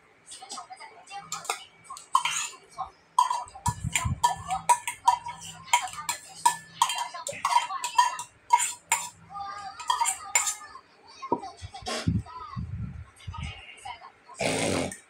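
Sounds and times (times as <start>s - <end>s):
cutlery and dishes clinking: 1.3s - 2.6s, 3.2s - 9.2s, 9.8s - 10.6s.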